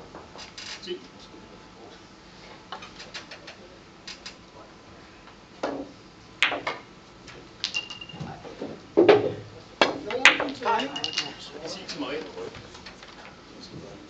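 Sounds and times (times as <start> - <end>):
billiard balls clacking: 5.6 - 13.2.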